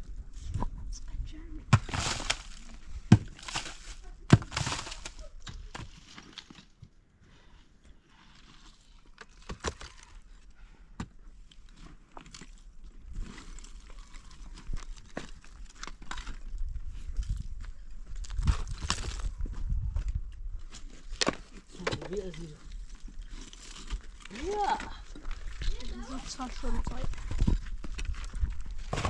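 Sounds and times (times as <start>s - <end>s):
digging tool striking stony earth: 1.7s - 6.7s, 20.8s - 22.5s, 23.4s - 29.0s
soil and grit scattering: 1.7s - 6.9s, 20.6s - 29.0s
scraping and rustling of dirt: 1.7s - 29.0s.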